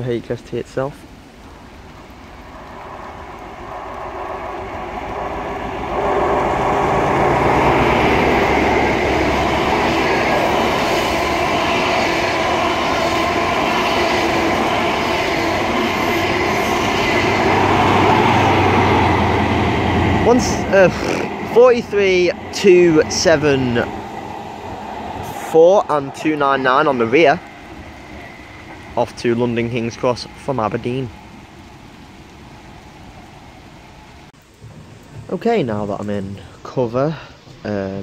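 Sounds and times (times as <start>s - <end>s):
train wheels rumbling on rails: 1.1s - 36.7s
diesel engine drone: 3.4s - 13.5s, 17.2s - 28.0s.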